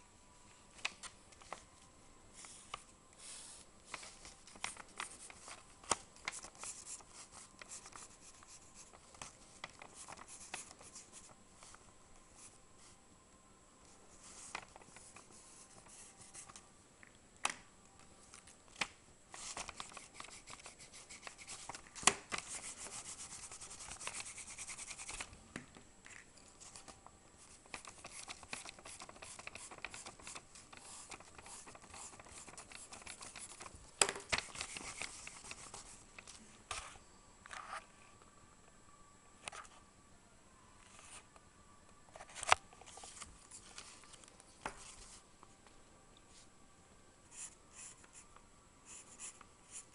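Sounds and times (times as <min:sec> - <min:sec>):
pencil scratching on paper: 0:22.4 - 0:25.2, 0:28.0 - 0:33.6.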